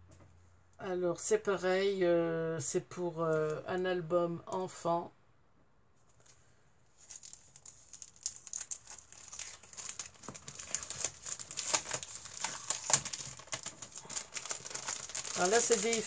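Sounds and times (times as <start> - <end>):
paper crinkling and rustling: 6.1 - 16.0.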